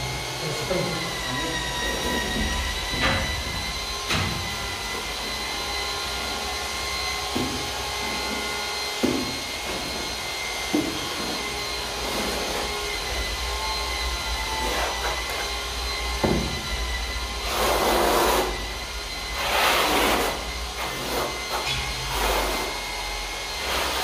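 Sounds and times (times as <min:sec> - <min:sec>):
machine hum: 0:00.0 - 0:24.0
trowel scraping on concrete: 0:10.7 - 0:12.9, 0:17.5 - 0:18.6, 0:19.4 - 0:22.8, 0:23.6 - 0:24.0.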